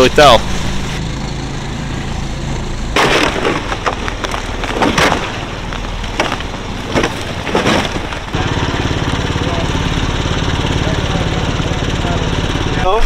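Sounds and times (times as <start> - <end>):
boat motor humming: 0.0 - 13.0
boat hull crunching through ice: 3.0 - 8.4.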